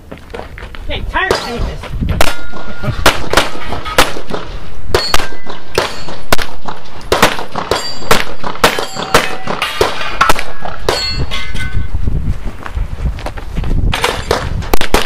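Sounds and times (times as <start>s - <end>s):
steel targets ringing: 2.2s - 4.2s, 4.9s - 6.3s, 7.7s - 11.9s
rapid pistol fire: 3.0s - 10.5s.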